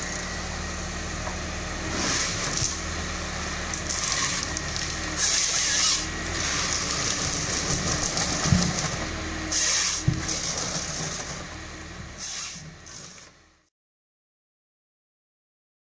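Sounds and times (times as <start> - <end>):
harvester engine drone: 0.0 - 13.7
hissing and scraping: 3.9 - 11.3, 12.2 - 13.2.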